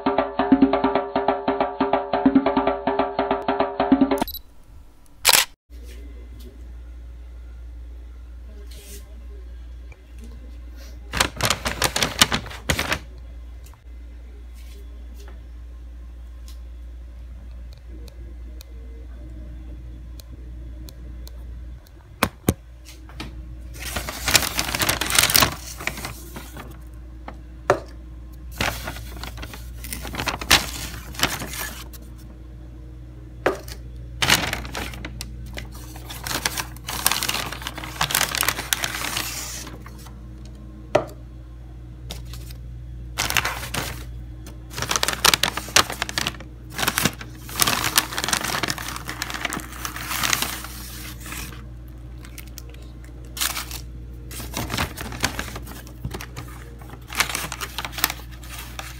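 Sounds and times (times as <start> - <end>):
low steady hum: 4.2 - 58.9
paper bag rustling: 11.1 - 13.2, 23.7 - 27.4, 28.5 - 32.2, 34.2 - 40.1, 43.2 - 51.6, 52.2 - 58.9.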